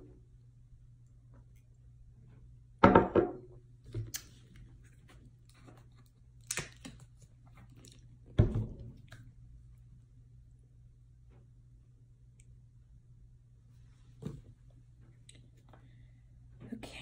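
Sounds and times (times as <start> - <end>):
objects knocking on table: 2.8 - 3.5.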